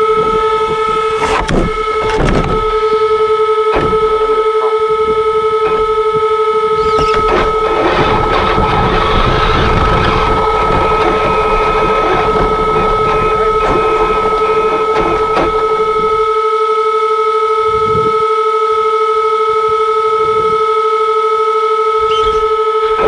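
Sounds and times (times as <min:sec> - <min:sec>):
tyres driving over packed snow: 0:00.0 - 0:16.3
electric motor high whine: 0:00.0 - 0:23.0.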